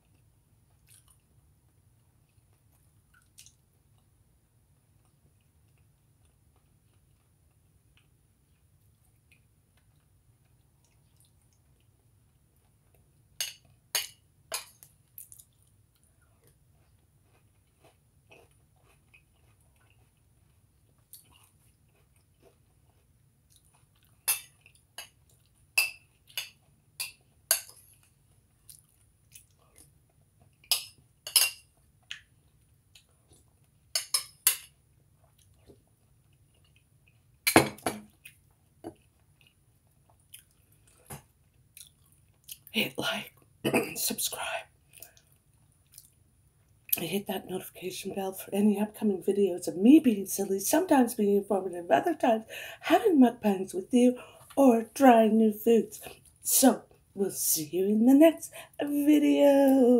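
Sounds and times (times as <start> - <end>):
cereal crunching while chewed: 14.7 - 30.7, 38.1 - 42.7.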